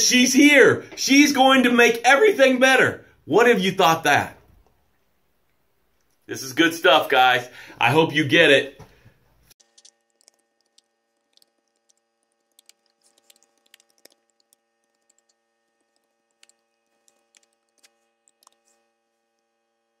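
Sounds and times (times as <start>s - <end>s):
computer keyboard typing: 9.6s - 18.7s.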